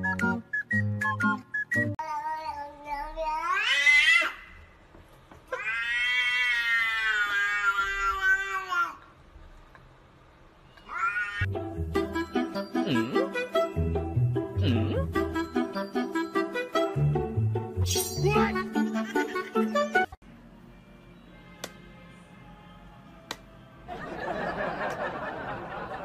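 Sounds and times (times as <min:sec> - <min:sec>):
cat yowling: 0:05.5 - 0:08.8, 0:10.8 - 0:11.5.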